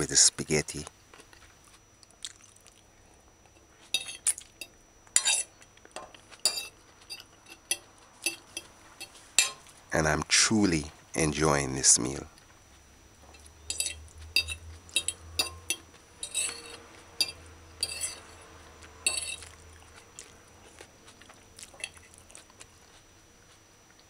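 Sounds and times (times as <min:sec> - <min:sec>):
fork clinking and scraping on plate: 0:03.9 - 0:09.7, 0:13.4 - 0:19.6, 0:21.6 - 0:22.4.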